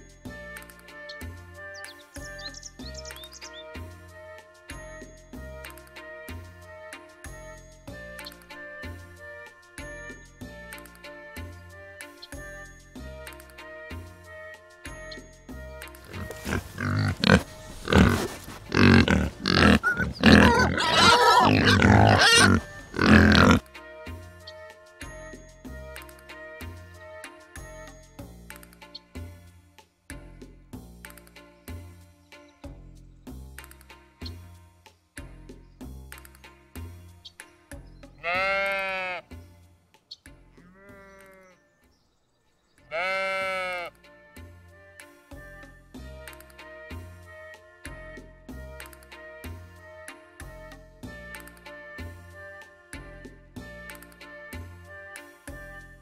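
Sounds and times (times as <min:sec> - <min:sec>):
pigs grunting: 0:16.1 - 0:23.6
pigs squealing: 0:16.1 - 0:23.6
sheep bleating: 0:16.1 - 0:23.6, 0:38.2 - 0:39.3, 0:40.6 - 0:41.7, 0:42.9 - 0:43.9.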